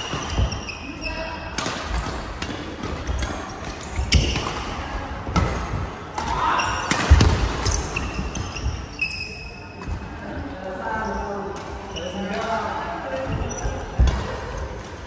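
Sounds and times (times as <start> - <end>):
sneakers squeaking on court: 0.0 - 10.3, 13.2 - 14.8.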